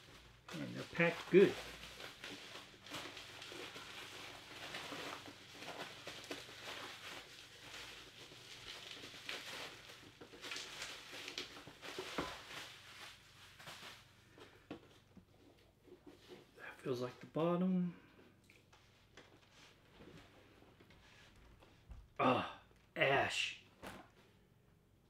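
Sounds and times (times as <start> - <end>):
rustling of packing material: 0.0 - 17.3.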